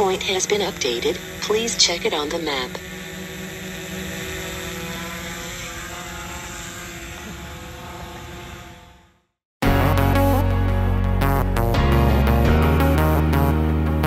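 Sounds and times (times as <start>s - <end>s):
drone propellers whining: 0.0s - 14.0s
music: 9.6s - 14.0s.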